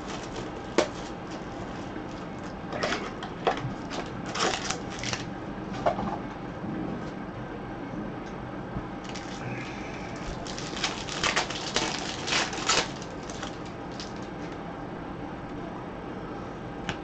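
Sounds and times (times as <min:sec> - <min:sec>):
foil wrapper crinkling and tearing: 0:00.0 - 0:01.4, 0:03.8 - 0:05.3, 0:09.0 - 0:09.4, 0:10.2 - 0:14.4.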